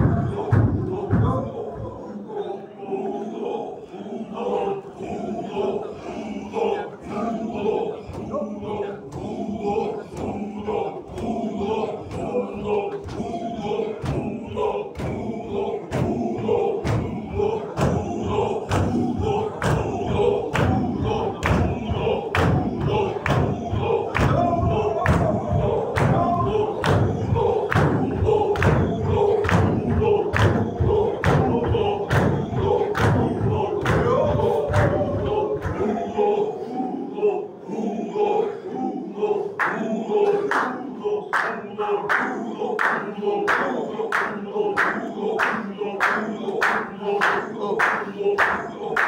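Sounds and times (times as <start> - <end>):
men chanting together: 0.0 - 49.0
stamping feet beat: 18.7 - 35.1.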